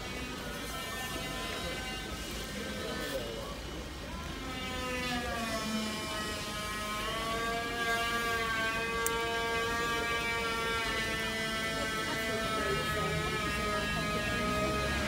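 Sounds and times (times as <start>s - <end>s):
diesel train engine humming: 5.9s - 15.0s.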